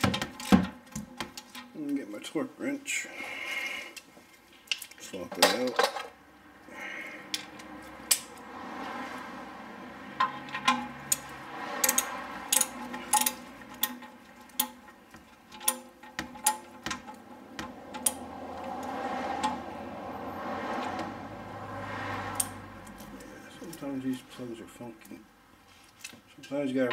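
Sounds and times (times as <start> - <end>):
hand ratchet clicking: 10.2 - 19.6.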